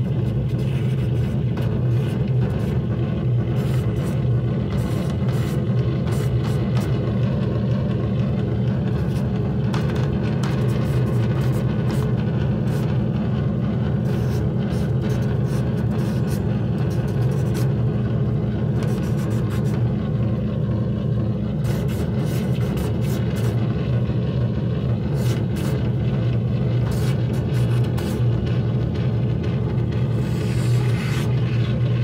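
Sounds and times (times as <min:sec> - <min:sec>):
low electric drone: 0:00.0 - 0:32.0
brush scratching on surface: 0:00.6 - 0:02.7, 0:30.2 - 0:31.4.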